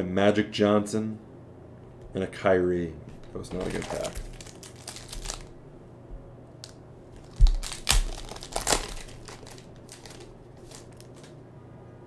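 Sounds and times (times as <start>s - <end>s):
wrapper tearing and crinkling: 3.2s - 5.6s, 6.6s - 11.3s.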